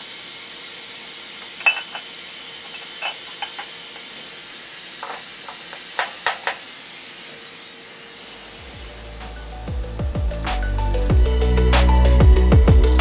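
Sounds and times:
metal parts clinking: 1.6 - 3.8
steady hiss: 8.2 - 12.2.

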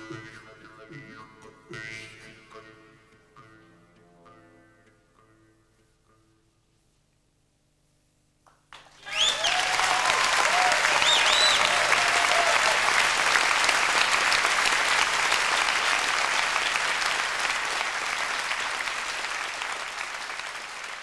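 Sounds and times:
audience applauding: 8.7 - 21.0
cheers and whistles: 8.9 - 21.0.

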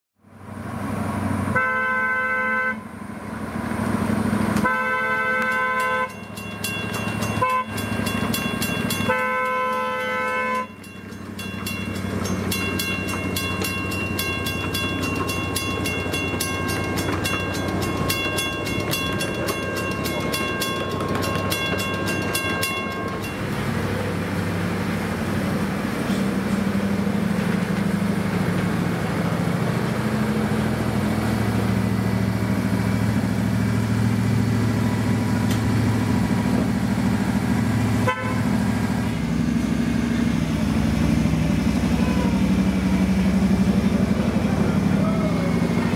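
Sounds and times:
miniature train engine running: 4.6 - 24.8
bell ringing rapidly: 5.5 - 23.6.

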